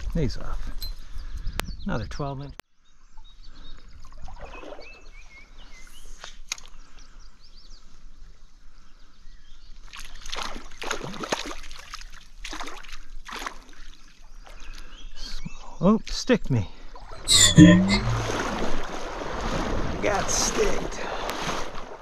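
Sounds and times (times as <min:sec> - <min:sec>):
stream water splashing: 0:04.1 - 0:05.2, 0:09.8 - 0:14.6, 0:18.0 - 0:22.0
faint bird chirps: 0:17.1 - 0:18.2
swishing splashes: 0:17.3 - 0:22.0.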